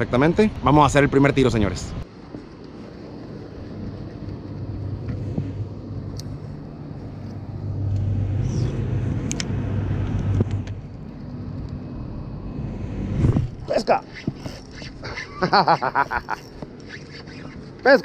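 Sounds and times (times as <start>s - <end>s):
motor low drone: 2.8s - 16.9s.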